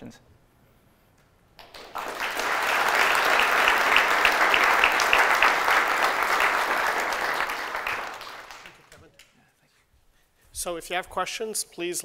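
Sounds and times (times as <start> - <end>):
audience applauding: 1.6 - 9.1
single person clapping: 1.6 - 9.4.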